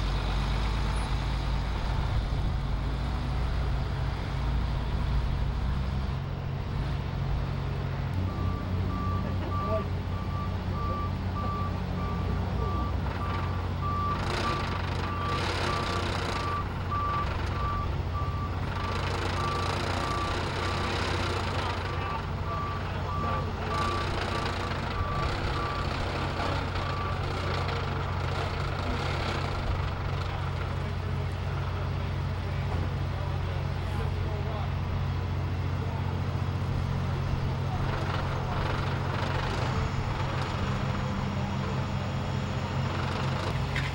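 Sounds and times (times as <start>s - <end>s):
diesel engine humming: 0.0s - 43.9s
reversing alarm beeping: 8.1s - 29.9s.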